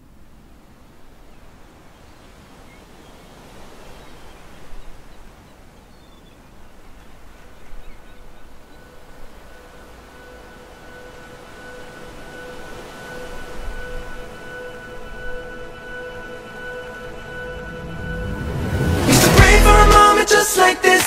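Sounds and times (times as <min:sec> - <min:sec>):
steady outdoor hiss: 0:00.0 - 0:21.0
faint bird chirps: 0:01.2 - 0:17.8
held musical tone: 0:09.0 - 0:21.0.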